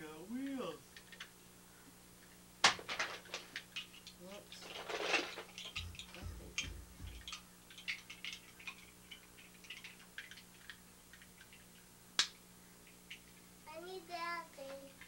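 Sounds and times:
low thumps: 0:05.7 - 0:07.6
sharp snap: 0:12.2 - 0:12.4.

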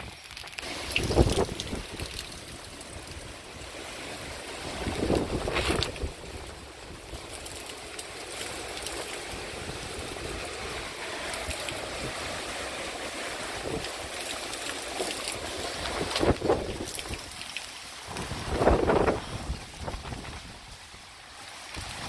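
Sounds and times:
steady rain: 0:00.0 - 0:22.0
wind bumps on microphone: 0:01.0 - 0:02.2, 0:04.7 - 0:06.3, 0:18.1 - 0:20.8.

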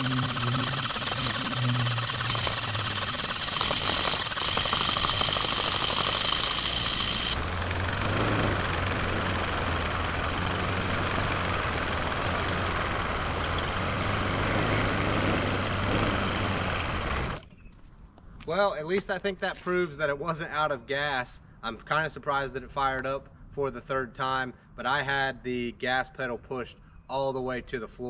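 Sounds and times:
engine cranking on starter: 0:00.0 - 0:17.4
engine running at low revs: 0:00.0 - 0:17.4.

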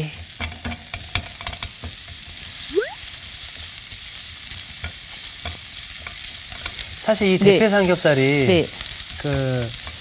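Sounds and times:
onion sizzling in frying pan: 0:00.0 - 0:10.0
spatula scraping and tapping pan: 0:00.3 - 0:02.4, 0:04.5 - 0:10.0.

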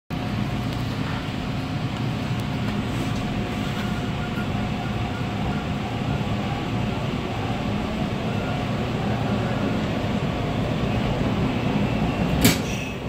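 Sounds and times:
subway wheels rumbling on rail: 0:00.1 - 0:13.0.

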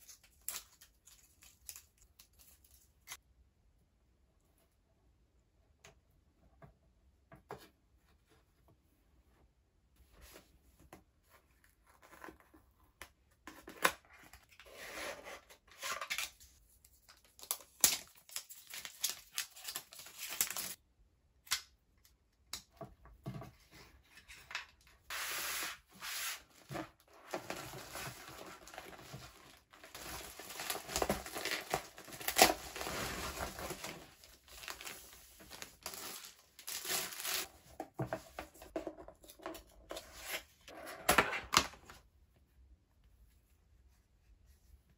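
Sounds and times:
plastic packaging tearing and crinkling: 0:17.4 - 0:20.8, 0:27.7 - 0:37.5.

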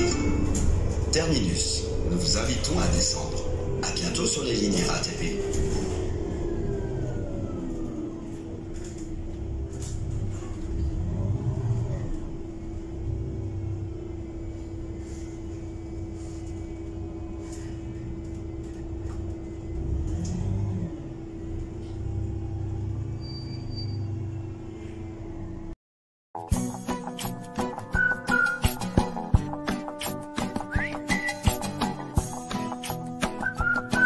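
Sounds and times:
bus engine rumble: 0:00.0 - 0:25.8.

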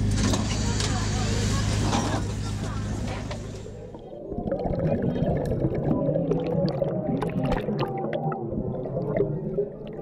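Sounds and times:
underwater rumble: 0:03.8 - 0:10.0
water bubbling and gurgling: 0:03.8 - 0:10.0
small bubble clicks: 0:03.9 - 0:10.0.

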